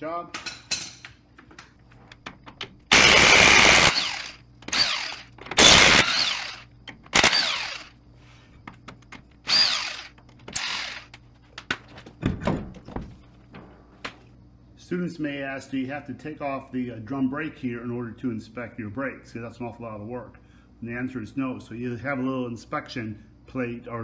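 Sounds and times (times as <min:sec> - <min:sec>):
impact wrench spinning lug nuts: 0:02.9 - 0:07.9, 0:09.5 - 0:11.2.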